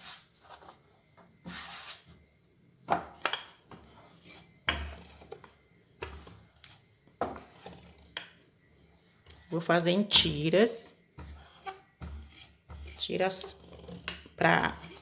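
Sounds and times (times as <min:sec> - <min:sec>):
rolling pin scraping on metal: 0:03.7 - 0:05.5, 0:07.2 - 0:08.2, 0:11.2 - 0:15.0.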